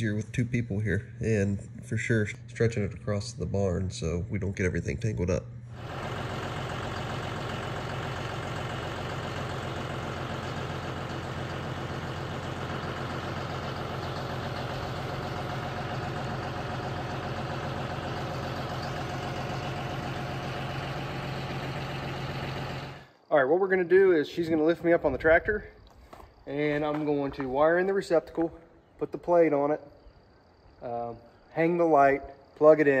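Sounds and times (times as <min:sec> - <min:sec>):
tractor engine idling: 0:00.0 - 0:23.3.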